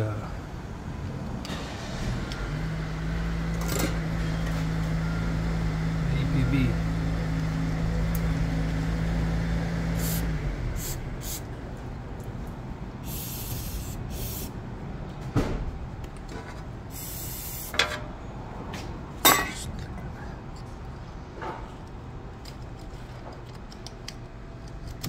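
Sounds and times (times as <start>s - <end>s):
short hissing sprays: 9.9s - 11.4s, 13.0s - 14.5s, 16.9s - 17.7s.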